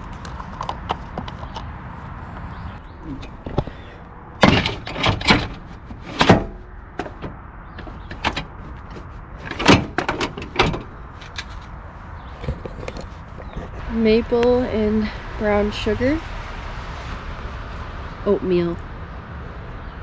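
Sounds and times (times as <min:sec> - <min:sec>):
truck tailgate clunking and rattling: 0:04.4 - 0:11.5.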